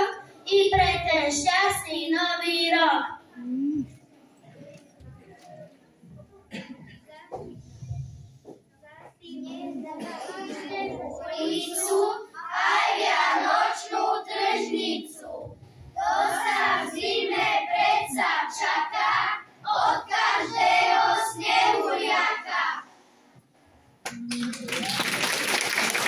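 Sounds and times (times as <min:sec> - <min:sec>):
children singing: 0:09.5 - 0:22.9.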